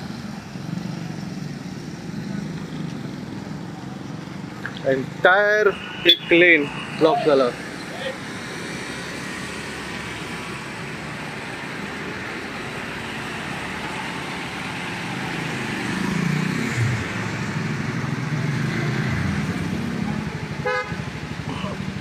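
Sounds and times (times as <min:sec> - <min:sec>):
highway traffic passing: 0:00.0 - 0:22.0.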